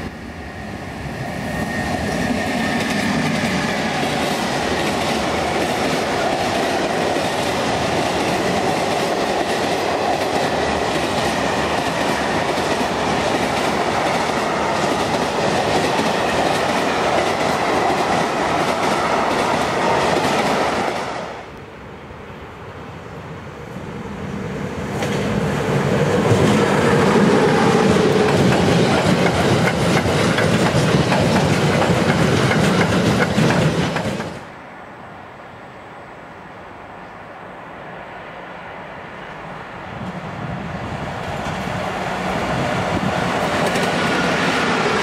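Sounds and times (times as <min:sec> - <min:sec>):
freight train passing: 0:00.0 - 0:45.0
wheels clattering on rails: 0:27.7 - 0:34.4, 0:42.9 - 0:45.0.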